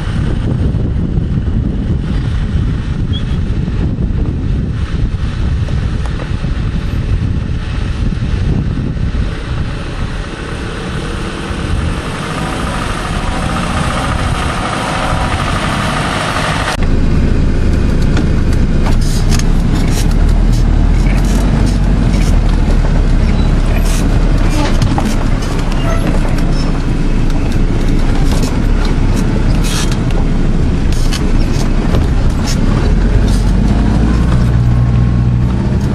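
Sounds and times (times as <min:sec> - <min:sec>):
engine rumble inside cab: 0:00.0 - 0:35.9
vehicle driving on gravel: 0:00.0 - 0:35.9
rattles and knocks over rough ground: 0:16.8 - 0:35.9.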